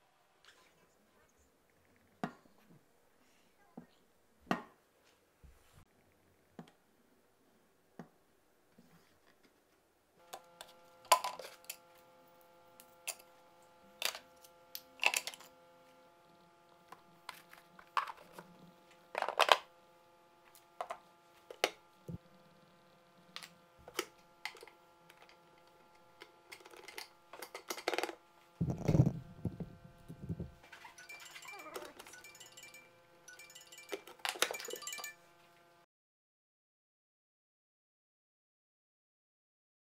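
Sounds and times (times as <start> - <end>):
faint steady hum: 5.9 - 35.8.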